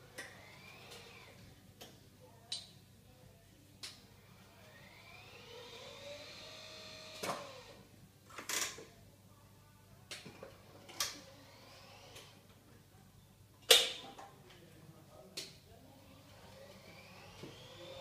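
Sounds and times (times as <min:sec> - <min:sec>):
lift motor whining: 0:00.0 - 0:01.4, 0:04.2 - 0:07.8, 0:10.6 - 0:12.4, 0:16.0 - 0:18.0.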